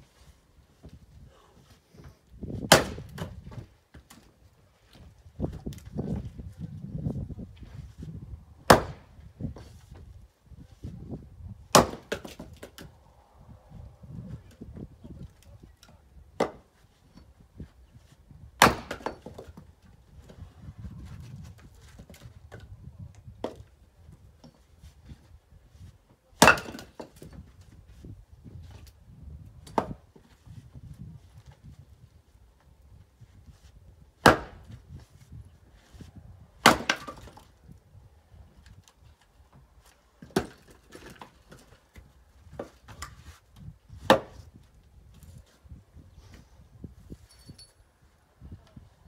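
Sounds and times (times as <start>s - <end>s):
axe striking firewood: 2.6s - 4.2s, 8.6s - 9.7s, 11.7s - 13.0s, 15.8s - 17.2s, 18.6s - 19.6s, 23.4s - 23.7s, 26.4s - 27.6s, 29.6s - 30.0s, 34.2s - 34.9s, 35.9s - 37.6s, 40.2s - 43.2s, 43.9s - 44.6s.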